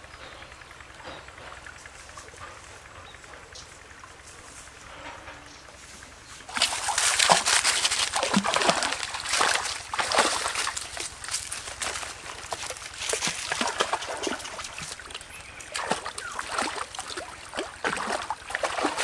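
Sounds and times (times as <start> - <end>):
dog splashing through water: 6.5 - 19.0
faint water trickle: 6.5 - 19.0.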